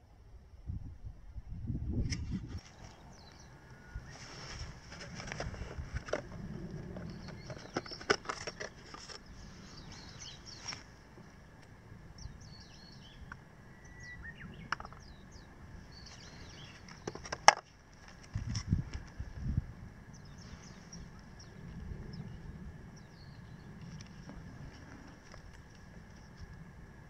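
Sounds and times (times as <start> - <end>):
small birds chirping: 2.6 - 17.5, 20.0 - 26.5.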